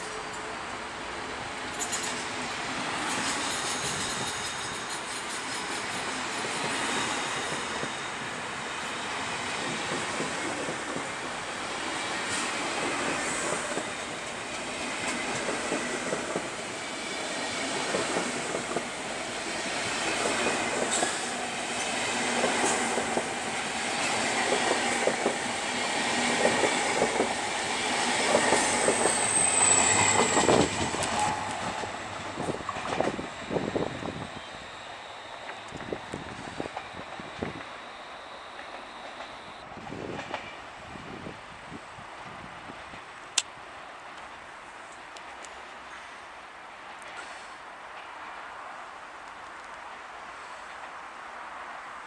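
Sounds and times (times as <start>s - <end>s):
train wheels clattering over joints: 1.7s - 2.4s, 3.0s - 8.0s
high wheel squeal: 3.0s - 9.6s, 28.5s - 32.0s.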